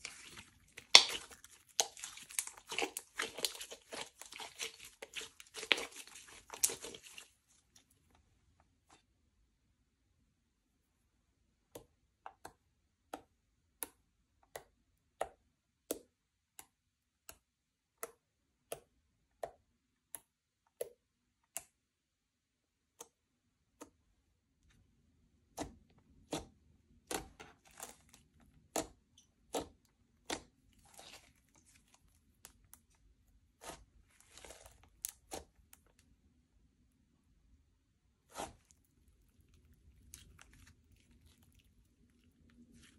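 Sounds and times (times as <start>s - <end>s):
slime clicking and popping: 0.1s - 7.2s.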